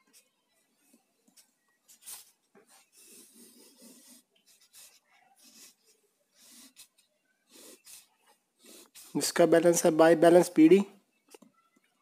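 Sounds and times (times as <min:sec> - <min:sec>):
pen scratching on paper: 0:01.3 - 0:09.3.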